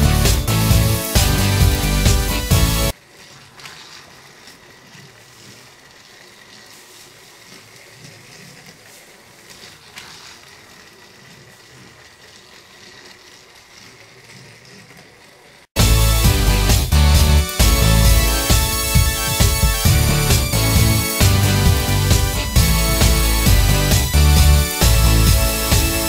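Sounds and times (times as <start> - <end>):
background music: 0.0 - 2.9, 15.8 - 26.0
wheels clicking on plastic track: 0.0 - 15.8
toy train motor whirring: 0.0 - 26.0.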